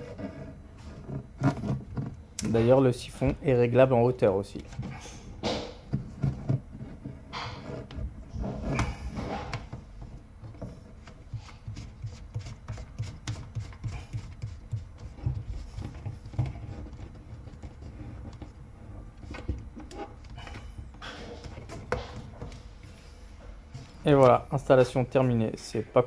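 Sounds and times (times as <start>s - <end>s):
plastic parts rubbing and knocking: 0.0s - 2.2s, 4.6s - 23.0s.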